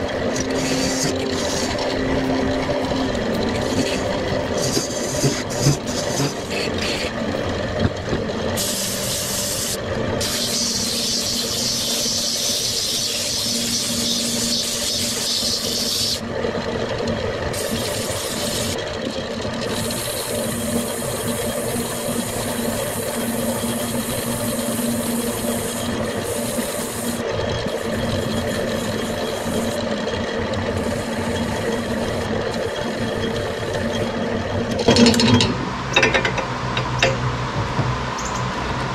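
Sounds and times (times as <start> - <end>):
sandpaper rasping on spinning wood: 0.0 - 2.0, 3.2 - 7.2, 8.6 - 16.2, 17.5 - 18.8, 19.7 - 30.1, 30.7 - 34.3
lathe motor hum: 0.0 - 38.9.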